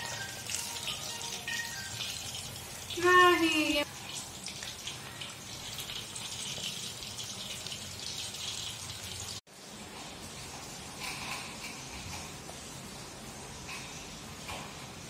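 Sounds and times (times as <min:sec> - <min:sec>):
fish sizzling in hot oil: 0:00.0 - 0:11.9.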